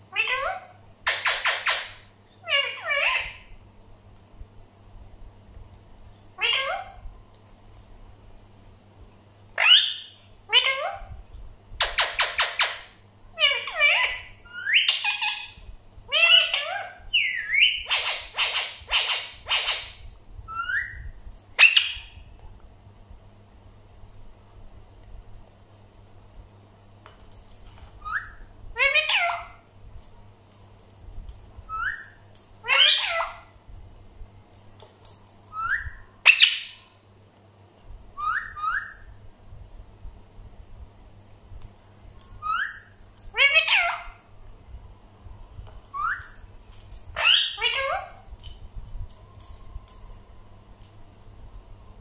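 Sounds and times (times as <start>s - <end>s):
parakeet harsh squawks: 0.1s - 3.5s, 31.8s - 33.5s, 42.5s - 44.2s, 47.2s - 48.2s
parakeets whistling and chattering: 16.2s - 22.1s, 31.7s - 33.4s, 38.2s - 39.1s, 46.0s - 46.4s, 47.2s - 48.2s.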